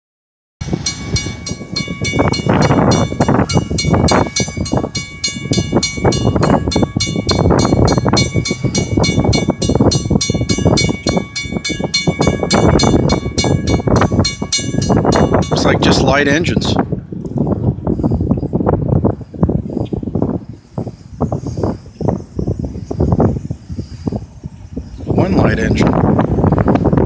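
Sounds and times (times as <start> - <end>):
diesel locomotive running: 0.6 - 16.0
wind buffeting microphone: 0.6 - 27.0.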